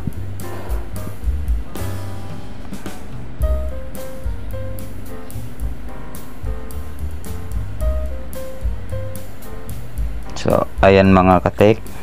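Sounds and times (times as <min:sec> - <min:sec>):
music with repeating bass line: 0:00.0 - 0:12.0.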